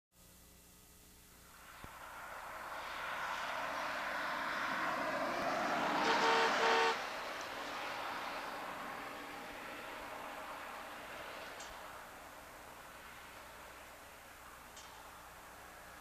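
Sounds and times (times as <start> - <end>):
vehicle road noise: 1.3 - 16.0
car horn toots: 6.0 - 7.0.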